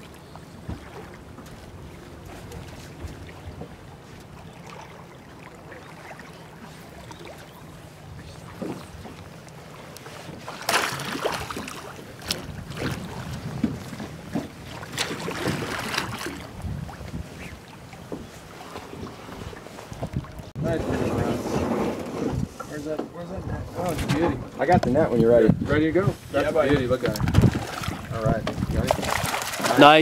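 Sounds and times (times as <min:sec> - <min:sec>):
water splashes: 0:00.0 - 0:21.3, 0:26.2 - 0:30.0
oars pulling through water: 0:00.0 - 0:30.0
wind on microphone: 0:12.2 - 0:22.7, 0:23.3 - 0:30.0.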